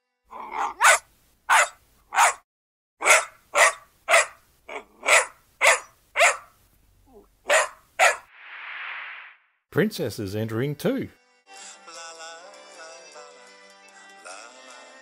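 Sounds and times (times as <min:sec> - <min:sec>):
dog barking: 0:00.5 - 0:02.4, 0:03.0 - 0:06.6, 0:07.5 - 0:08.3.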